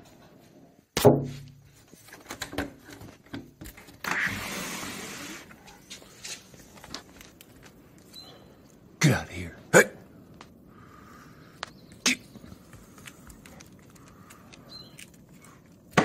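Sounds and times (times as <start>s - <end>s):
claws scraping: 11.5s - 16.0s.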